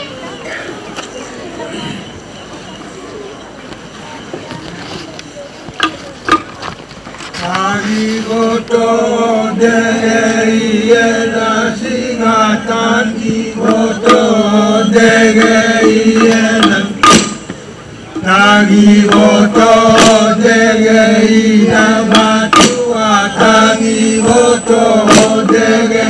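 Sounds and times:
men chanting together: 7.6 - 17.2, 18.2 - 26.0.

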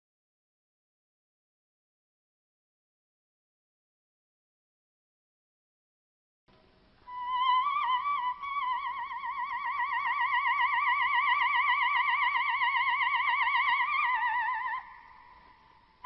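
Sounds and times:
soprano holding high note: 7.1 - 15.8.

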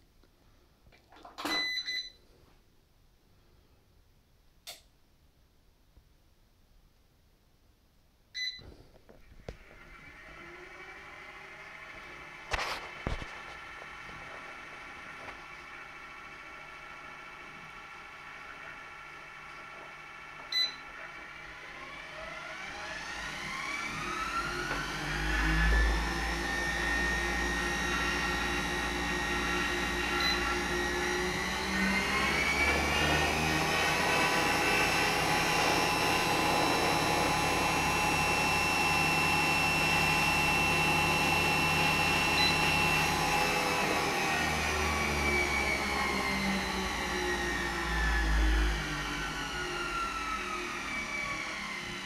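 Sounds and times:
treadmill motor whine: 8.4 - 52.0.

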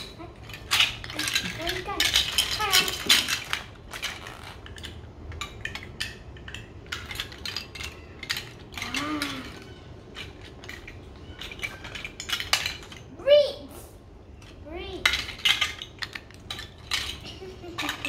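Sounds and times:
plastic bricks clicking: 0.0 - 13.0, 14.4 - 18.0.

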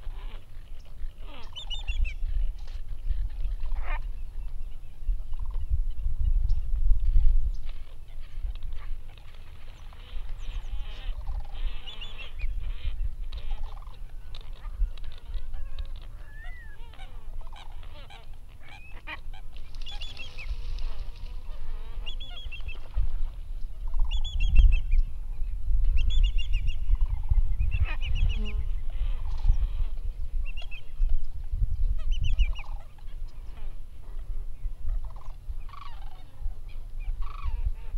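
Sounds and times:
geese honking: 8.2 - 23.1.

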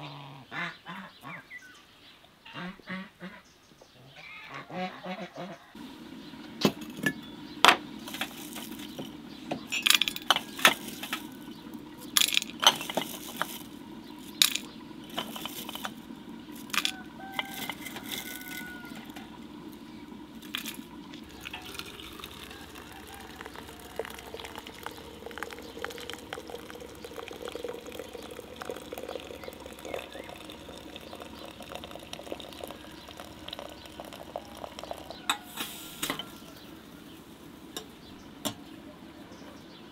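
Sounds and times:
water pouring into glass teapot: 5.8 - 37.0
glass clinking: 6.6 - 11.3, 12.1 - 13.7, 14.4 - 16.0, 16.6 - 19.3, 20.4 - 36.4.

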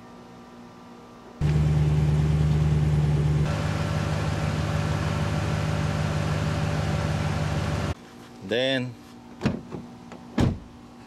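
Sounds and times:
pickup engine idling: 1.4 - 8.0.

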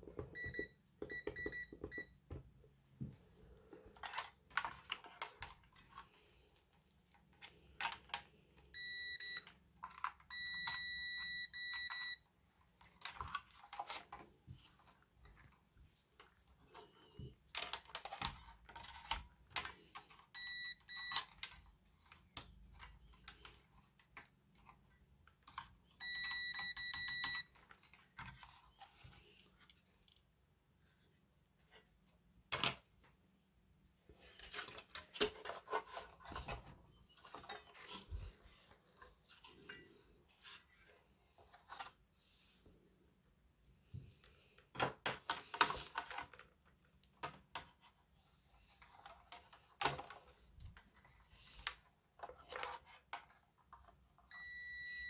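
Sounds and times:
multimeter beeping: 0.3 - 2.1, 8.8 - 9.5, 10.3 - 12.2, 20.4 - 21.2, 26.0 - 27.5, 54.3 - 55.0.

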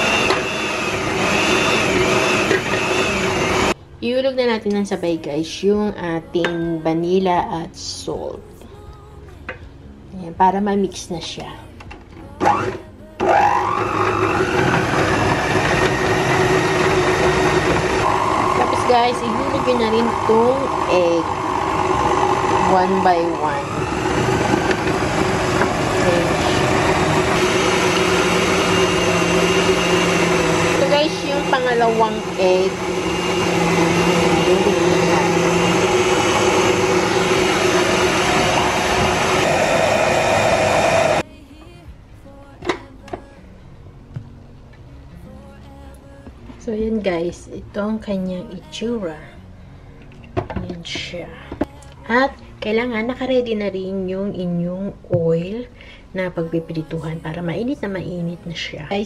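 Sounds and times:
stand mixer motor whining: 0.0 - 3.8, 12.4 - 41.2.

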